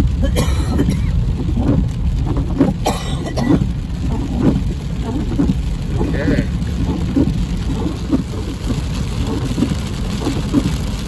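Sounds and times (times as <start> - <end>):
car driving on wet road: 0.0 - 11.0
car road and engine rumble: 0.0 - 11.0.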